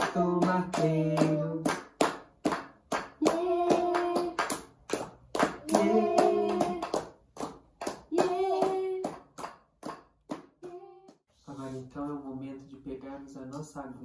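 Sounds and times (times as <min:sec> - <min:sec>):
voices singing together: 0:00.0 - 0:01.7, 0:03.2 - 0:04.6, 0:05.6 - 0:07.0, 0:08.1 - 0:09.1
rhythmic hand clapping: 0:00.0 - 0:11.2.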